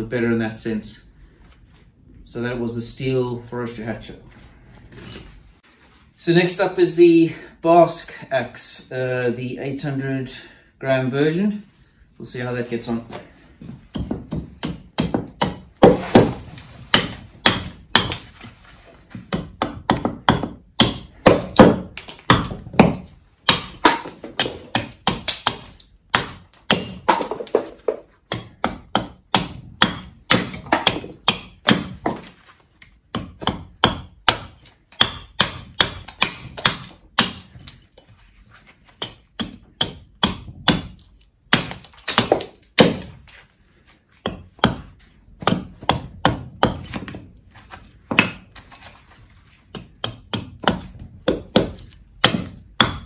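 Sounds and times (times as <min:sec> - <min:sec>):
axe chopping wood: 0:13.9 - 0:18.5, 0:19.1 - 0:32.4, 0:33.1 - 0:37.8, 0:39.0 - 0:43.2, 0:44.2 - 0:47.3, 0:48.1 - 0:48.5, 0:49.7 - 0:53.0.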